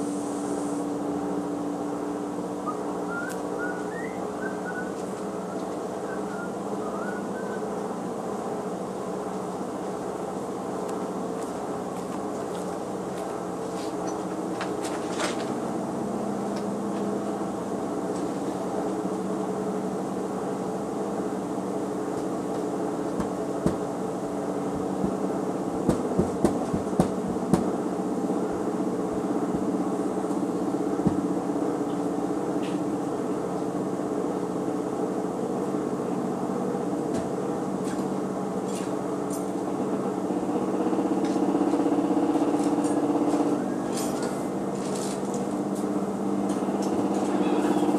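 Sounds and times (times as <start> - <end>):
washing machine motor hum: 0.0 - 47.9
sharp knocks: 23.2 - 23.9, 25.8 - 27.7.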